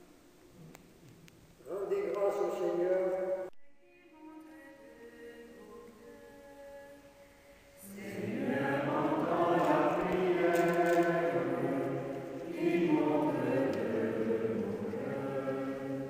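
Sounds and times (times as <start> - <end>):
group singing a hymn: 4.3 - 7.2, 7.8 - 16.0.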